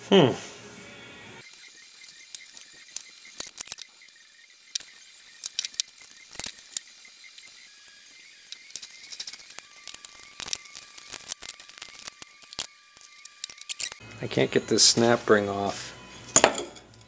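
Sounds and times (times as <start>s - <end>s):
metal tools clicking and clinking: 8.5s - 14.0s, 16.3s - 17.0s.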